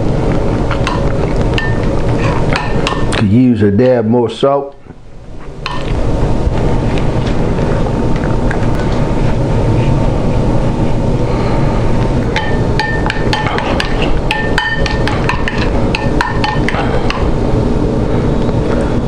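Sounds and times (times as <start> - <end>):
faint hum: 0.0 - 19.0
fork clinking against ceramic bowl: 1.6 - 1.9, 12.4 - 17.2
loud rumbling noise: 5.0 - 19.0.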